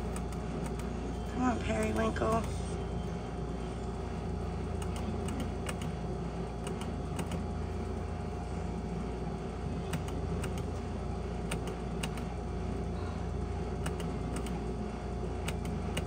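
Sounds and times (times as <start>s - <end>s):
steady low hum: 0.0s - 16.0s
game machine clicking: 4.8s - 6.0s, 6.6s - 7.4s, 9.9s - 10.7s, 11.5s - 12.3s, 13.8s - 14.6s.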